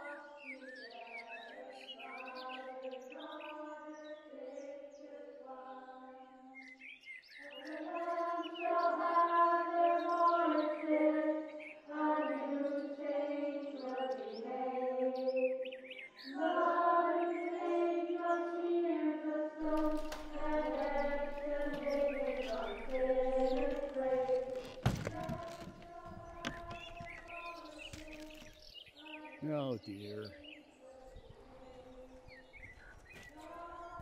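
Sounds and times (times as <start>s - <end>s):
wordless choir film score: 0.0s - 34.0s
birds chirping: 6.6s - 18.6s, 19.6s - 34.0s.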